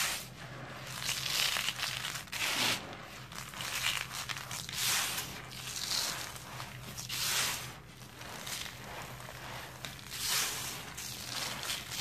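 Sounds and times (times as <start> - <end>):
hands crumbling dry sand clump: 0.8 - 12.0.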